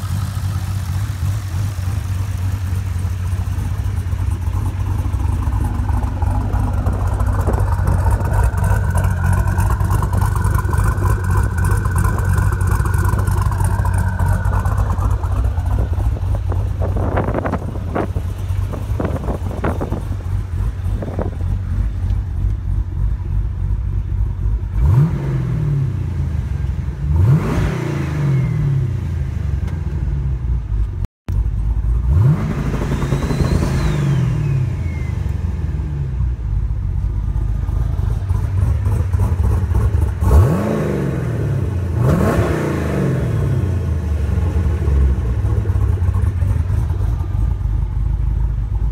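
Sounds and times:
car engine idling and revving: 0.0s - 48.9s
high turbo whistle: 32.8s - 35.3s.

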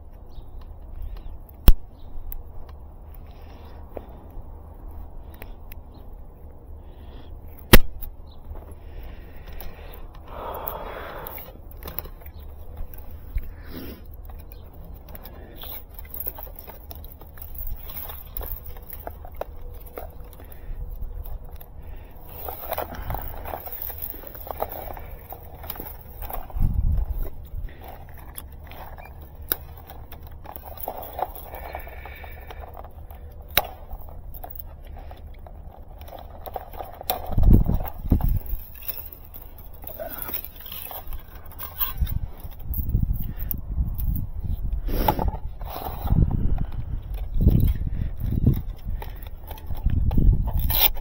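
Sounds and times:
steady low rumble: 0.0s - 51.0s
cable handling rustling: 7.4s - 51.0s
side cutters clicking: 47.0s - 51.0s.

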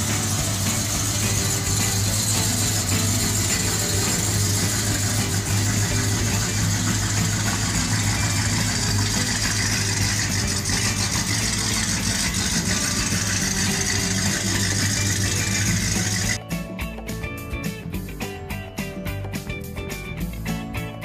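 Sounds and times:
car engine idling: 0.0s - 16.4s.

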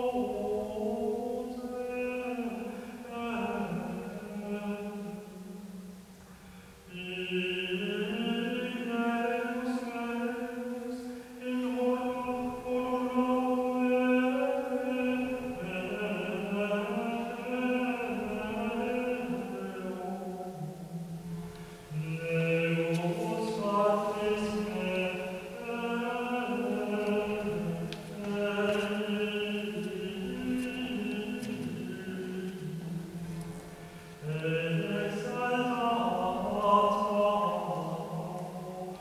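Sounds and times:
man singing chant: 0.0s - 5.9s, 6.8s - 39.0s.

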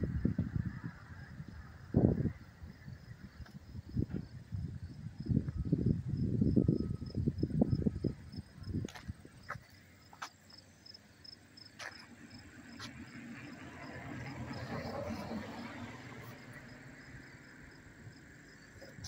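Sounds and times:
wind buffeting microphone: 0.0s - 9.6s
insect chirping: 0.0s - 19.0s.

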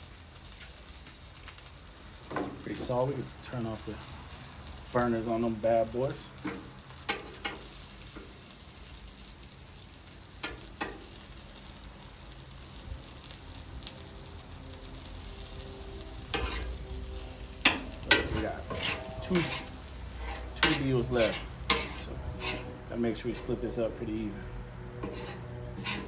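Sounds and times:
sausages and onions sizzling: 0.0s - 26.0s
metal utensils clicking on griddle: 6.4s - 8.3s, 10.4s - 11.1s, 16.3s - 16.7s, 17.6s - 22.7s, 25.0s - 26.0s.

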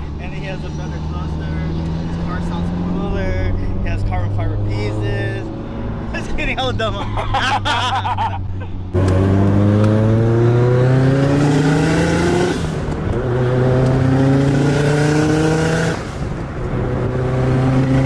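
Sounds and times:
car engine accelerating hard: 8.8s - 18.0s.

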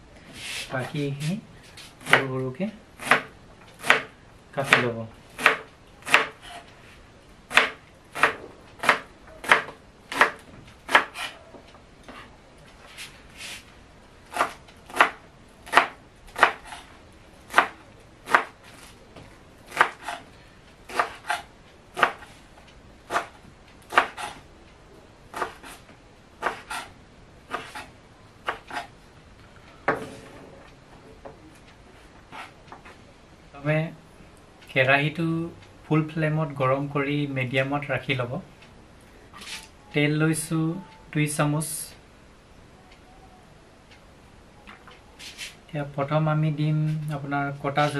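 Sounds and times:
knife chopping on wooden board: 3.0s - 4.1s, 5.4s - 6.6s, 7.5s - 11.4s, 14.3s - 16.9s, 17.5s - 18.6s, 19.7s - 20.2s, 20.9s - 22.3s, 23.1s - 24.4s, 25.3s - 25.8s, 26.4s - 26.9s, 27.5s - 28.9s.

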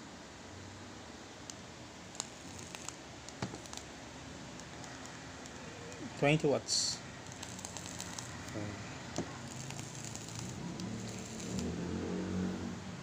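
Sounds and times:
e-liquid sizzling and crackling: 2.0s - 6.6s, 7.2s - 8.6s, 9.2s - 11.8s.

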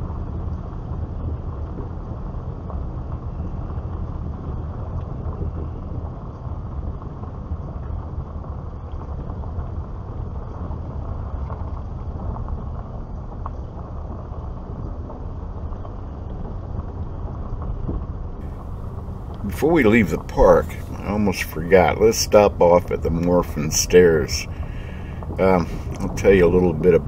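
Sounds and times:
car engine and tyre rumble: 18.4s - 27.0s.

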